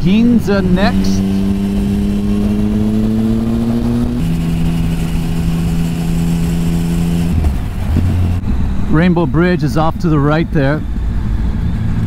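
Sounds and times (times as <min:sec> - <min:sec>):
motorcycle engine at speed: 0:00.0 - 0:09.4.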